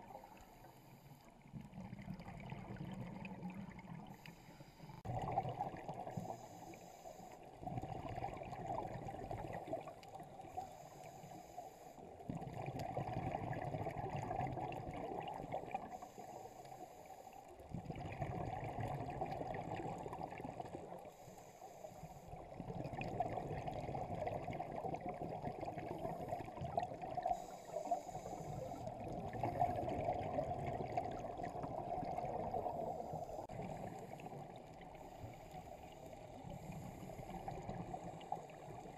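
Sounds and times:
regulator inhale hiss: 0.0s - 1.3s, 4.1s - 5.0s, 6.1s - 7.6s, 10.5s - 12.2s, 15.8s - 17.6s, 21.0s - 22.4s, 27.2s - 29.0s, 32.6s - 38.9s
exhaled bubbles rushing: 1.5s - 4.2s, 5.0s - 6.4s, 7.6s - 10.5s, 12.3s - 15.9s, 17.7s - 21.0s, 22.3s - 35.0s.

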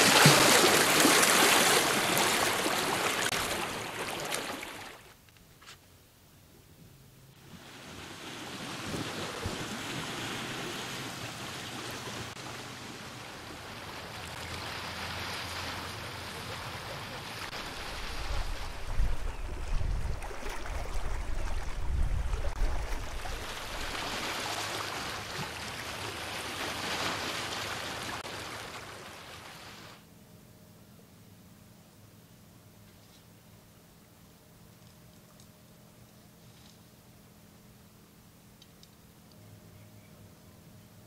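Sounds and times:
waves washing on shore: 0.0s - 5.1s, 7.4s - 19.3s, 20.3s - 30.0s
wind rumbling on microphone: 17.6s - 24.2s.

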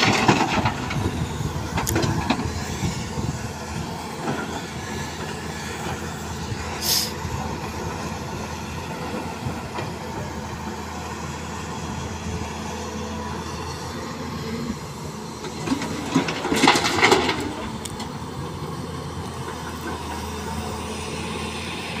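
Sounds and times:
rocks and dirt clattering into metal: 0.0s - 1.1s, 15.6s - 17.7s
excavator diesel engine running: 0.0s - 22.0s
brief hiss: 6.8s - 7.2s.

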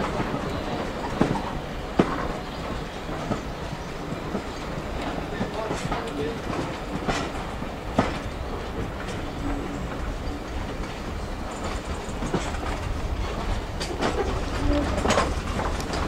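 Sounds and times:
train carriage rumble: 0.0s - 16.0s
wheels clicking over rail joint: 0.0s - 16.0s.

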